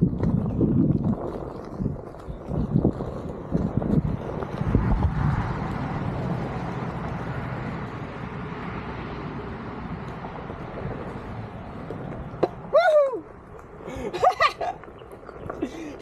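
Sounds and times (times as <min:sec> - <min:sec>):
tyre rumbling on dirt: 0:00.0 - 0:08.9
board thumping over bumps: 0:11.9 - 0:12.8.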